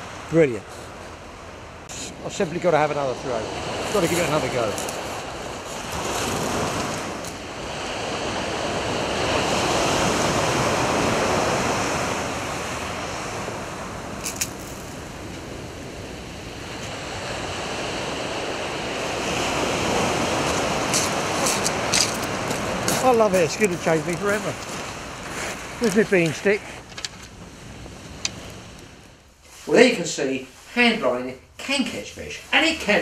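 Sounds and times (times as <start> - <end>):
waves breaking on beach: 0.0 - 30.0
wind: 0.0 - 33.0.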